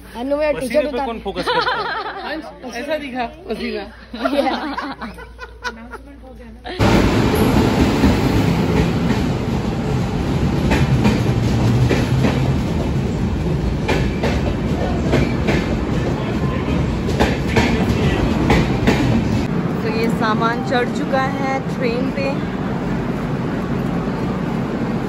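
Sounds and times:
train wheels rumbling on rails: 0:06.8 - 0:25.0.

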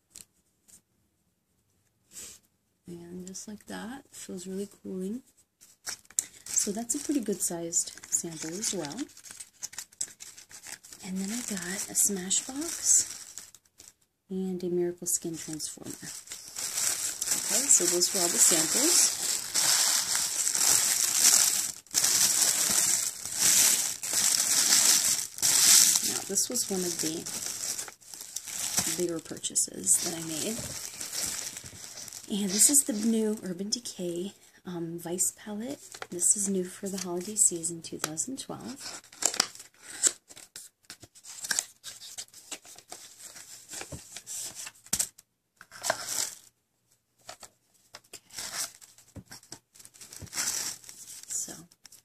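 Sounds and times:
tissue paper crinkling: 0:05.6 - 0:14.0, 0:15.2 - 0:33.4, 0:45.7 - 0:46.5, 0:48.3 - 0:52.0.

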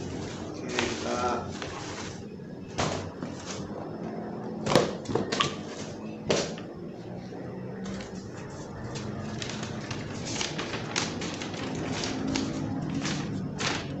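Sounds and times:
paper and plastic rustling: 0:00.0 - 0:03.8, 0:07.8 - 0:14.0.

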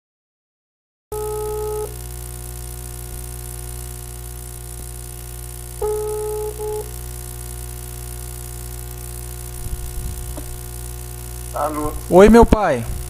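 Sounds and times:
electrical hum: 0:01.1 - 0:13.0
telephone ringback beeps: 0:01.2 - 0:02.0, 0:05.8 - 0:06.9.

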